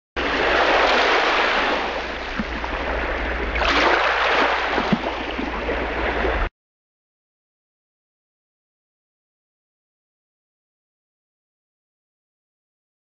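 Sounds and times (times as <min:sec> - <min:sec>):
rushing water: 0:00.2 - 0:06.5.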